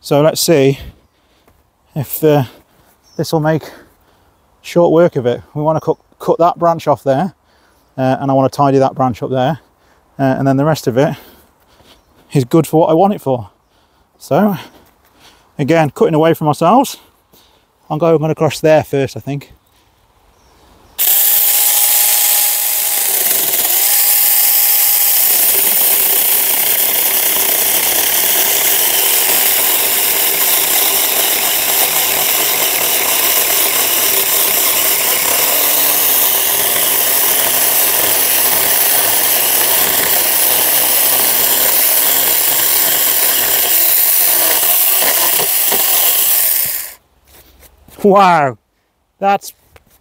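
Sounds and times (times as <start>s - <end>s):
chainsaw cutting through branch: 21.0s - 47.0s
electric chainsaw motor whine: 21.0s - 47.0s.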